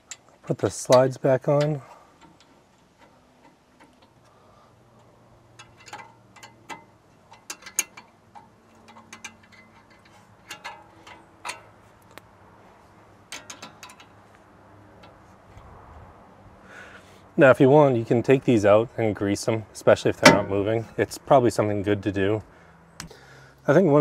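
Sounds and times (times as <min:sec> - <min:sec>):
wrench clicking on metal bolts: 0:05.0 - 0:12.2, 0:13.3 - 0:14.2.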